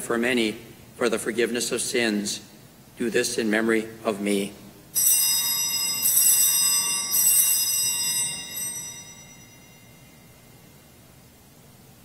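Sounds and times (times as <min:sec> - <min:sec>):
altar bells ringing: 0:04.9 - 0:11.1.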